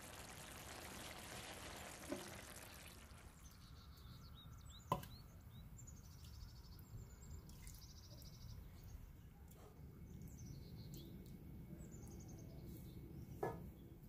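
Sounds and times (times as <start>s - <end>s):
low steady background rumble: 0.0s - 14.0s.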